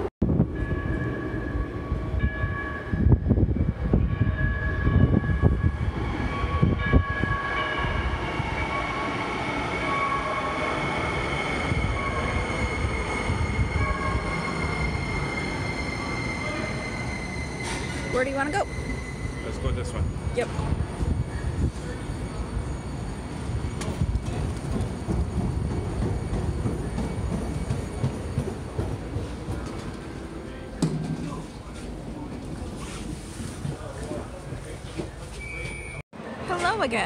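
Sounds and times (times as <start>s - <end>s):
train rumbling on rails: 0.0s - 37.0s
high-pitched train tones: 0.2s - 29.3s.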